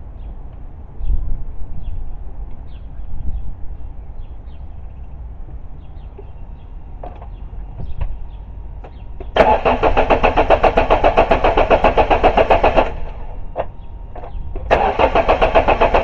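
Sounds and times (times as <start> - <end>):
engine cranking on starter motor: 9.4 - 13.4, 14.2 - 16.0.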